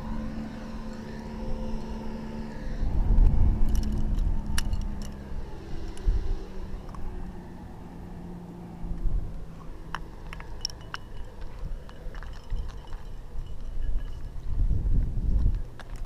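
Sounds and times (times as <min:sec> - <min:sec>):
low rumble on microphone: 0:00.0 - 0:07.9, 0:11.0 - 0:16.0
climbing hardware clinking: 0:03.2 - 0:06.1, 0:09.9 - 0:14.6.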